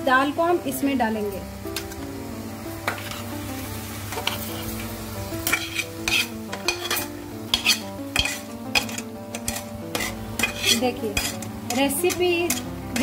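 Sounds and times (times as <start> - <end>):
light sizzle: 0.0 - 13.0
metal spoon scraping a pan: 4.1 - 4.8, 5.4 - 13.0.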